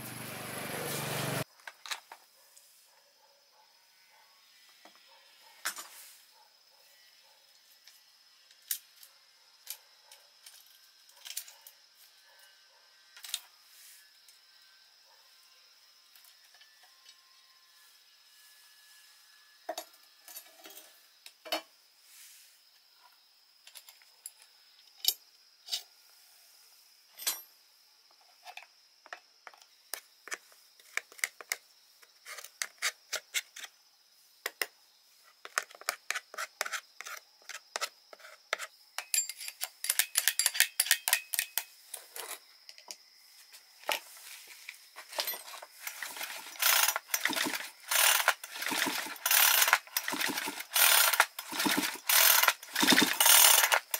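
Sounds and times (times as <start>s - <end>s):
metal parts clinking: 39.0s - 42.4s, 45.0s - 53.9s.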